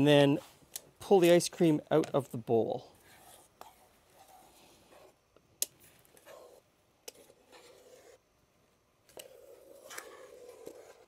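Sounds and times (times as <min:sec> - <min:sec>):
spatula scraping metal bowl: 0:09.2 - 0:11.0.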